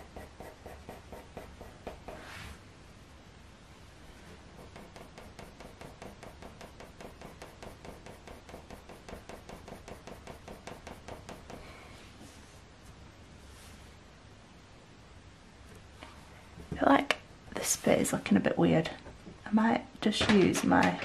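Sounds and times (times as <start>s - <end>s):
pencil scratching on paper: 0.0s - 2.4s, 4.5s - 11.6s.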